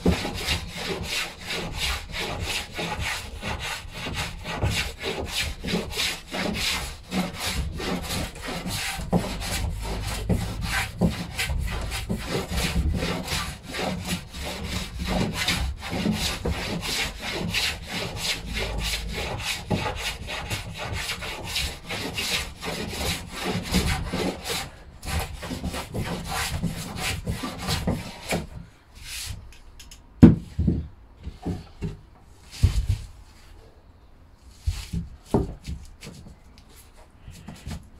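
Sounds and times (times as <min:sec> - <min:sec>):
hand plane shaving wood: 0:00.0 - 0:28.5
knocks on wood: 0:30.2 - 0:32.0.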